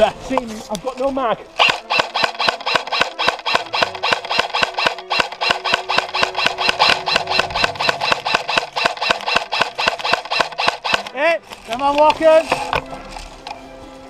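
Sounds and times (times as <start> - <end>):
rapid mechanical clicking: 1.6 - 11.2.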